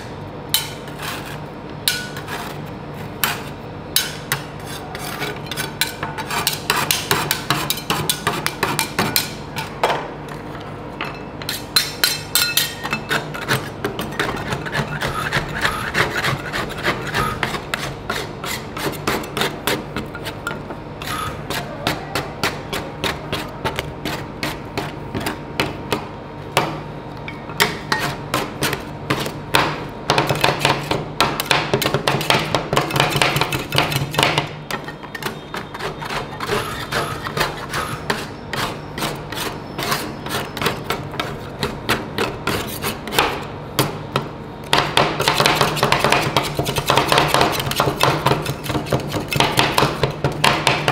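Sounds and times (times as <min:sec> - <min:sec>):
metal spatulas clacking on steel: 0:11.5 - 0:13.2.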